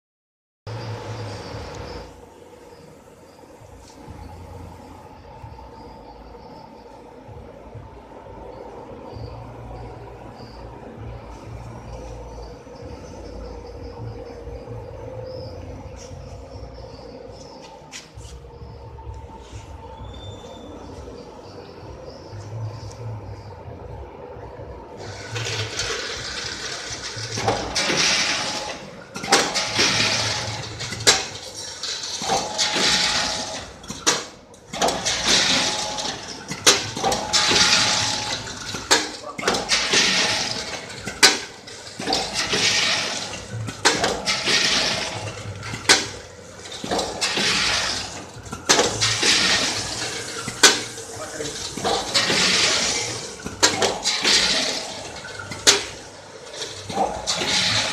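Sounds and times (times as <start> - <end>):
packaging machine hiss and clatter: 25.0 - 57.9.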